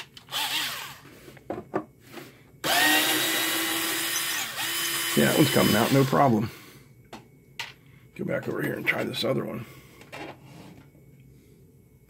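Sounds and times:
cordless drill whining: 0.2s - 1.1s, 2.6s - 6.3s.

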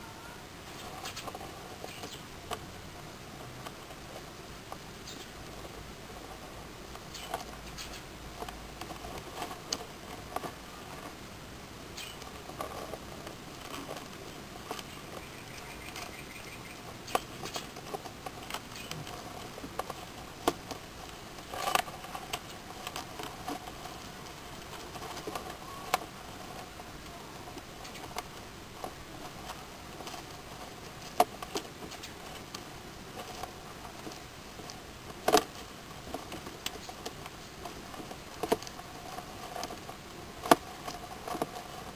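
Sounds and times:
faint steady hiss: 0.0s - 41.9s
legs scrabbling on gravel: 11.9s - 41.9s.

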